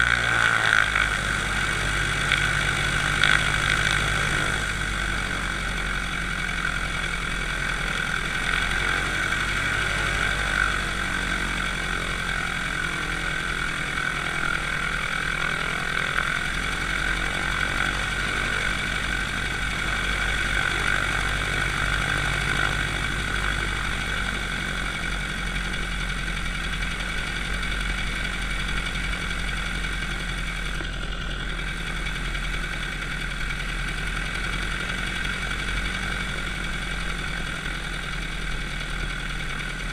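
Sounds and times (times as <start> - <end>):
propeller and wind hiss: 0.0 - 26.4
piston engine idling: 0.0 - 39.9.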